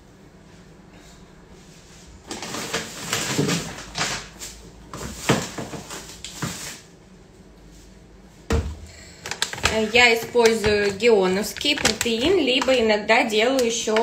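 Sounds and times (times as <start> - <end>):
plastic bag thump: 8.5 - 11.0.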